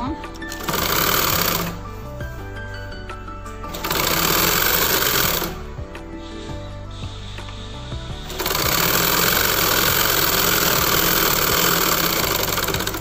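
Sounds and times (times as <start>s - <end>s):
background music: 0.0s - 13.0s
sewing machine stitching: 0.5s - 1.8s, 3.7s - 5.6s, 8.2s - 13.0s.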